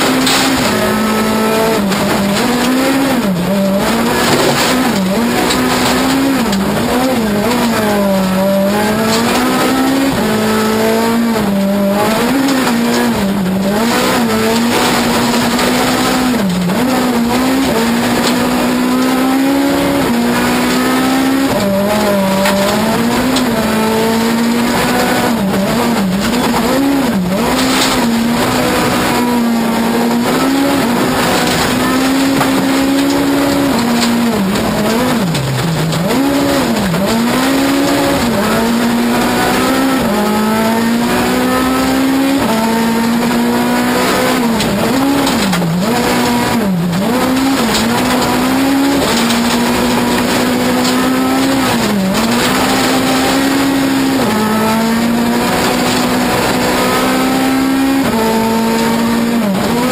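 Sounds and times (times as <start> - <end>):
rally car engine revving: 0.0 - 59.9
tyre and gravel noise: 0.0 - 59.9.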